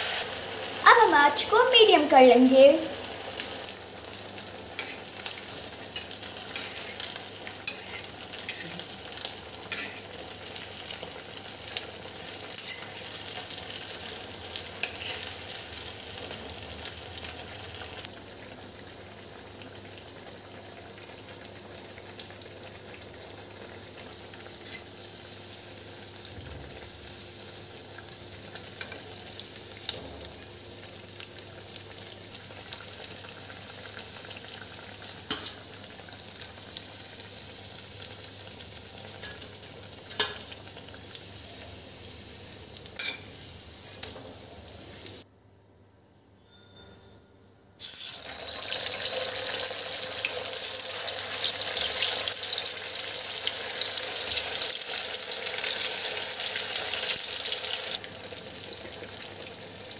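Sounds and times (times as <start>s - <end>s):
food sizzling in hot oil: 0.0s - 45.3s, 47.8s - 59.9s
oil crackling and popping: 47.8s - 59.4s.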